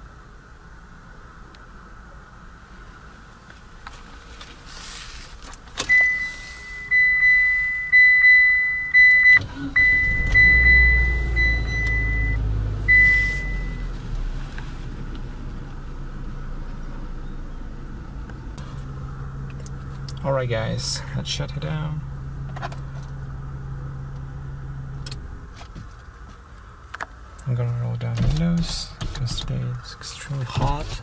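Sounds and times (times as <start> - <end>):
car engine starting and idling: 3.7 - 31.0
dashboard warning chime dinging: 5.8 - 14.0.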